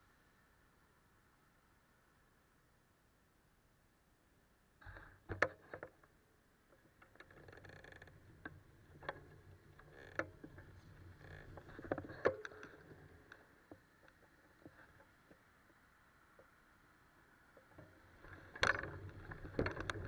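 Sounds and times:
bicycle tyre rumble: 17.7s - 20.0s
bicycle clicks and knocks: 17.8s - 20.0s.

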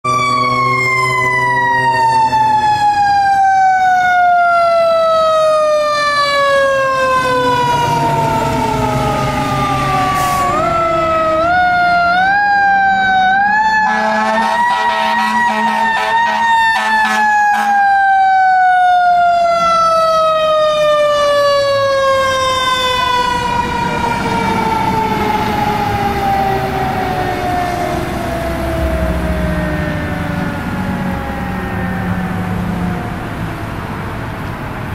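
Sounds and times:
low horn-like tone: 13.9s - 17.8s.

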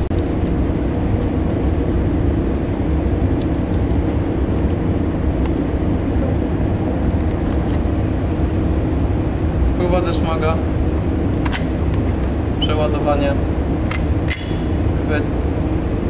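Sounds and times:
low mechanical hum and rumble: 0.0s - 16.0s.

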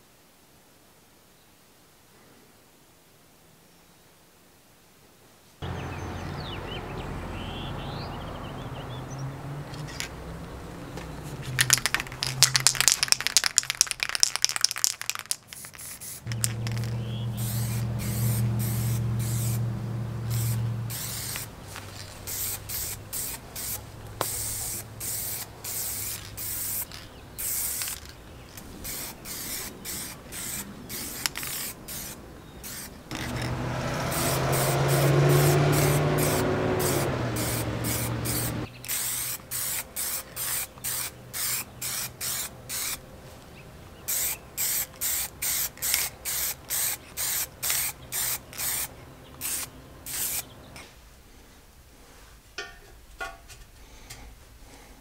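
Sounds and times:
spray can ball rattling: 9.8s - 10.2s, 11.3s - 19.6s, 20.3s - 43.0s, 44.1s - 50.4s
spray can hissing bursts: 11.5s - 28.2s, 28.8s - 43.0s, 44.1s - 50.5s.

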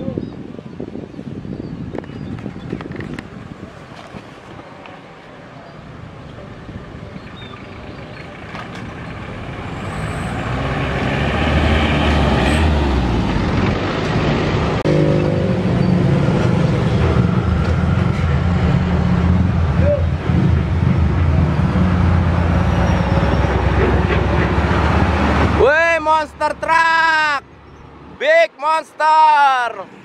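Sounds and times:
steady engine hum: 4.7s - 25.6s
pickup truck engine driving past: 7.6s - 25.6s.

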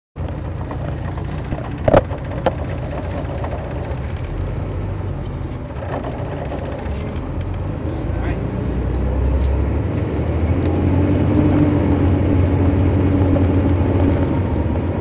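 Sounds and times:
bus diesel engine rumbling: 0.2s - 15.0s
knocks rattling in cabin: 5.6s - 7.7s.

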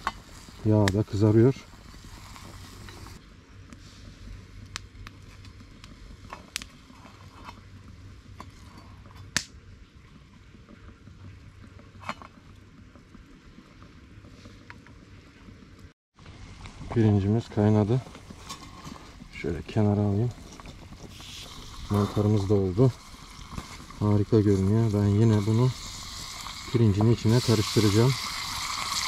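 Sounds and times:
water boiling in pan: 0.0s - 3.2s, 16.2s - 29.0s
campfire crackling and popping: 0.0s - 29.0s
mushrooms frying in oil: 19.4s - 29.0s.

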